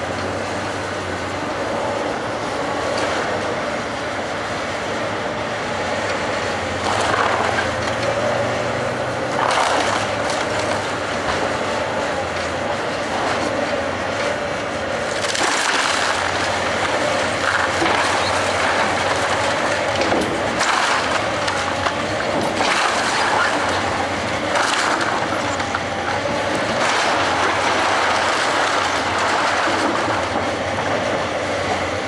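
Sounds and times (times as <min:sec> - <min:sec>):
excavator engine running: 0:00.0 - 0:32.0
crunching wood and clattering debris: 0:06.8 - 0:08.4, 0:09.3 - 0:11.6, 0:12.2 - 0:31.3.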